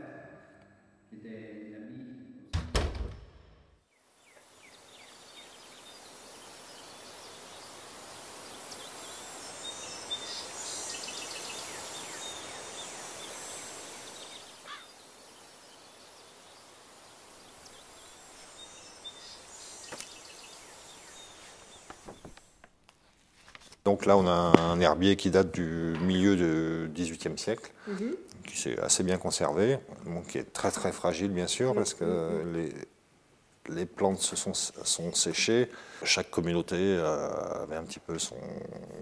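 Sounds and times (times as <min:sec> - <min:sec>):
heavy thud: 0:02.5 - 0:03.8
faint bird chirps: 0:03.9 - 0:22.4
high hiss: 0:03.9 - 0:22.7.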